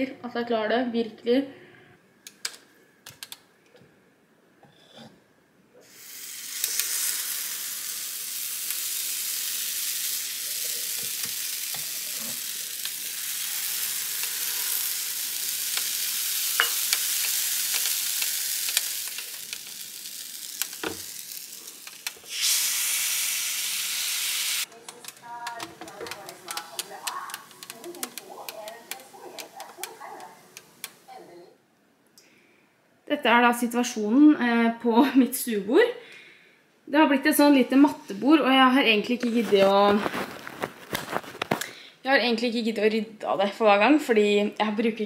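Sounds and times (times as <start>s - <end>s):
batter sizzling in waffle iron: 5.8s - 31.1s.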